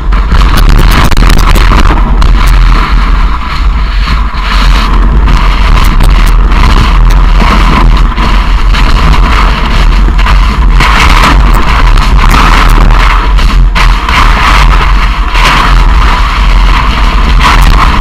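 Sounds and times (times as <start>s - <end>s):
wind buffeting microphone: 0.0s - 18.0s.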